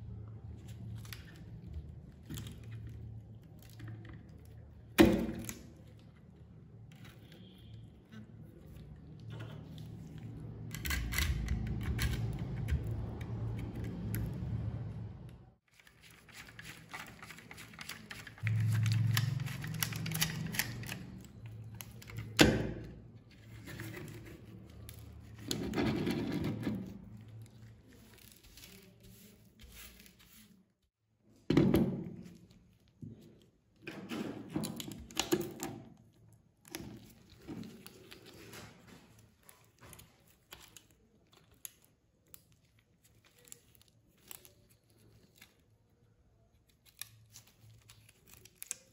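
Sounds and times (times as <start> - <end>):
scraping and crackling of dried mud: 23.0 - 30.8, 36.5 - 48.9.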